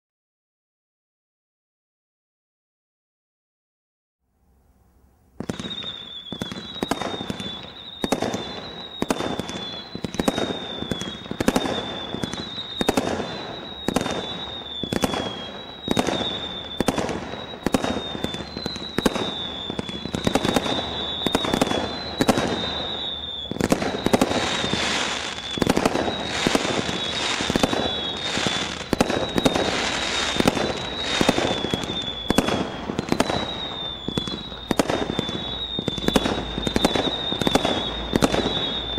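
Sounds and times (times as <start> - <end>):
falling high whistle: 5.4 - 38.9
roman candle shots: 5.4 - 38.9.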